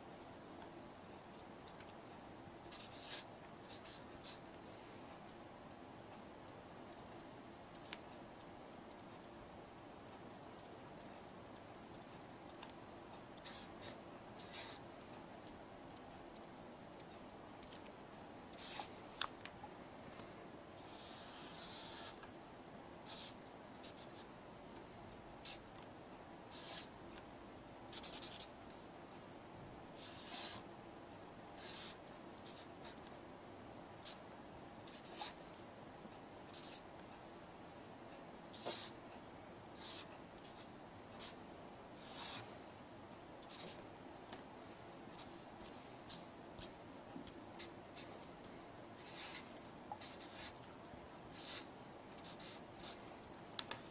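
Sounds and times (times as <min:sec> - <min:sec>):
pen scratching on paper: 0:02.7 - 0:04.4, 0:13.4 - 0:14.8, 0:18.6 - 0:18.9, 0:20.9 - 0:22.2, 0:23.1 - 0:24.2, 0:26.5 - 0:26.9, 0:27.9 - 0:28.5, 0:30.0 - 0:30.6, 0:31.6 - 0:33.0, 0:34.9 - 0:35.4, 0:36.5 - 0:36.8, 0:38.5 - 0:38.9, 0:39.8 - 0:41.4, 0:42.0 - 0:42.5, 0:43.5 - 0:43.8, 0:49.0 - 0:50.6, 0:51.3 - 0:53.0.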